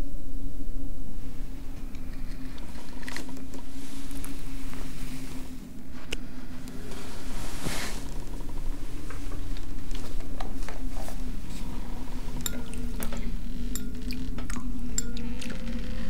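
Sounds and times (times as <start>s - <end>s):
low steady hum: 0.0s - 16.0s
spoons clinking against bowls: 12.4s - 15.6s.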